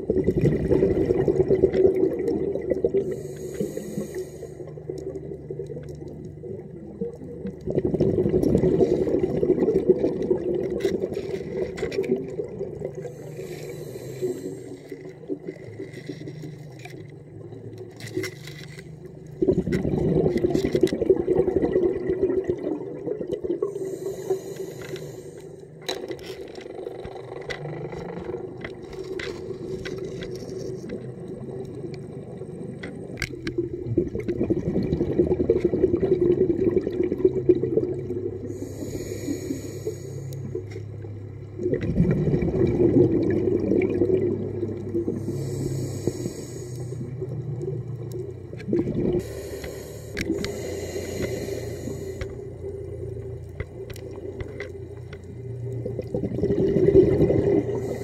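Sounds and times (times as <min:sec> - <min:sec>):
bubbling underwater exhales: 0:00.0 - 0:18.0, 0:19.0 - 0:58.0
hissing regulator inhales: 0:03.0 - 0:04.8, 0:12.9 - 0:15.0, 0:23.6 - 0:25.8, 0:38.5 - 0:40.6, 0:45.1 - 0:47.2, 0:49.2 - 0:52.7, 0:57.7 - 0:58.0.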